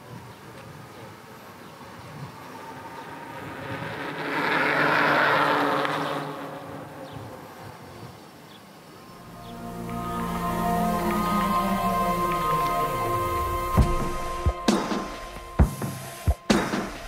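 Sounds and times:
electric bike buzzing hum: 0:02.3 - 0:07.5.

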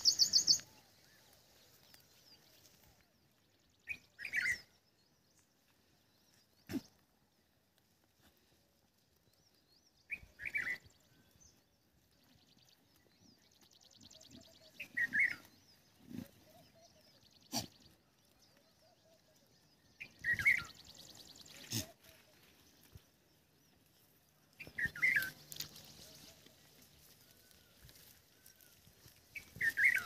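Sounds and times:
bird call: 0:24.6 - 0:26.5.

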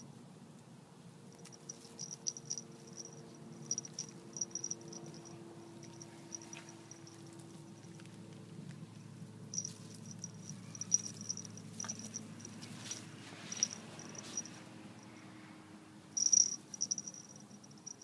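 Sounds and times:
small collar bell tinkling: 0:01.4 - 0:08.0, 0:09.5 - 0:15.3, 0:16.2 - 0:18.0
dry grass and leaves rustling: 0:09.5 - 0:14.8.

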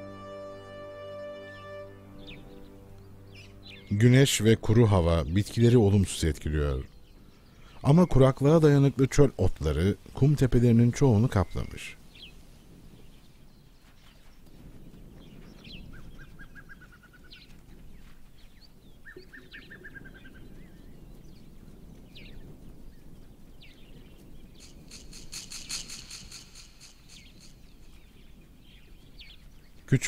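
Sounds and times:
birds chirping: 0:00.0 - 0:30.0
outdoor ambience: 0:00.0 - 0:30.0
bird trills: 0:19.0 - 0:20.8, 0:24.5 - 0:28.2.

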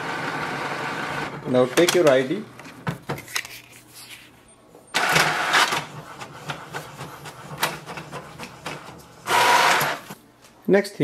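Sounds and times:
inkjet printer whirring: 0:00.0 - 0:01.9, 0:04.9 - 0:10.2.

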